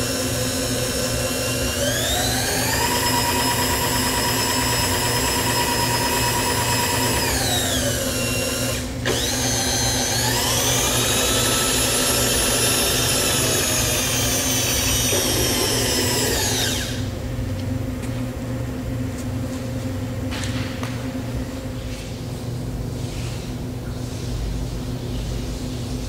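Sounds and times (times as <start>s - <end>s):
milling machine motor whine: 0.0s - 17.2s
low machine hum: 0.0s - 26.0s.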